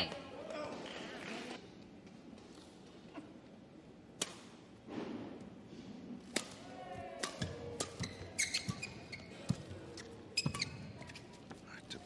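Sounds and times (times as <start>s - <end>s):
rackets striking shuttlecock: 4.2s - 4.6s, 6.2s - 9.7s
shoes squeaking on court: 7.4s - 12.0s.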